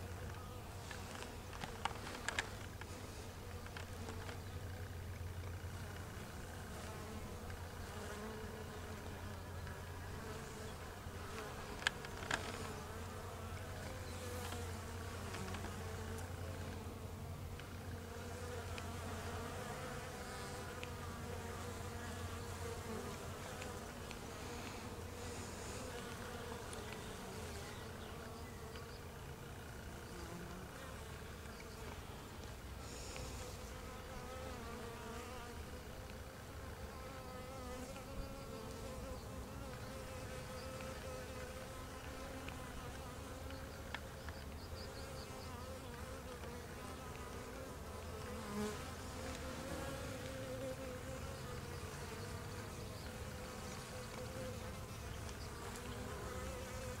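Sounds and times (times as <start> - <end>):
bees buzzing: 0.0 - 57.0.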